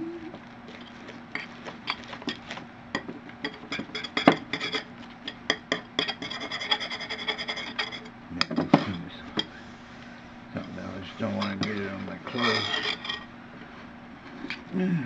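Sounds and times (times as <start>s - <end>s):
spoon scraping metal bowl: 3.4s - 4.9s, 6.0s - 8.1s, 10.6s - 13.3s
bowl ringing high squeal: 11.7s - 13.3s.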